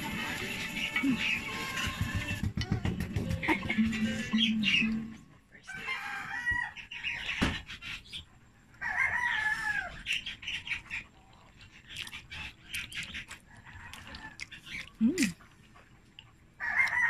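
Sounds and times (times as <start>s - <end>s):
rooster crowing: 5.7s - 6.8s, 8.8s - 10.0s, 16.6s - 17.0s
noodles slurped and chewed: 11.1s - 17.0s.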